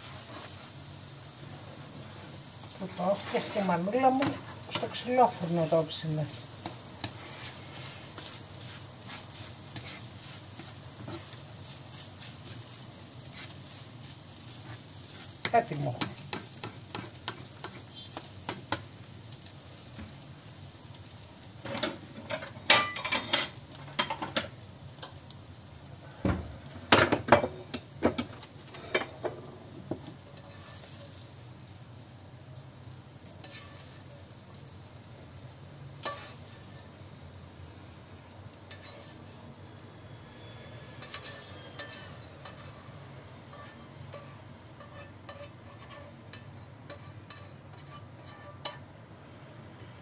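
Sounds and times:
faint sizzle: 0:00.0 - 0:50.0
spoon scraping frying pan: 0:02.1 - 0:18.9, 0:21.7 - 0:25.2, 0:27.0 - 0:31.2, 0:33.4 - 0:34.2, 0:36.0 - 0:37.0, 0:38.5 - 0:39.4, 0:40.4 - 0:48.9
spoon clinking on pan and bowl: 0:21.8 - 0:24.4, 0:41.0 - 0:42.7.

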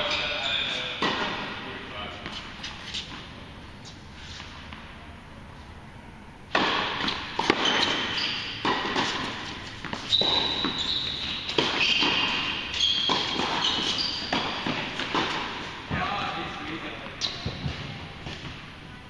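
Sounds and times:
rackets striking tennis ball: 0:00.0 - 0:03.3, 0:06.5 - 0:18.6
sneakers squeaking on court: 0:00.0 - 0:04.0, 0:06.9 - 0:16.0, 0:17.1 - 0:18.6
ball bouncing on hard court: 0:00.9 - 0:01.5, 0:06.5 - 0:16.4, 0:17.2 - 0:18.6.

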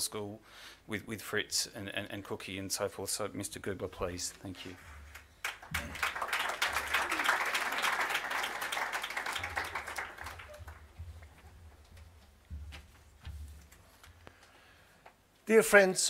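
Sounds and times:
audience applauding: 0:05.1 - 0:11.4
soft low thuds: 0:10.4 - 0:14.2.

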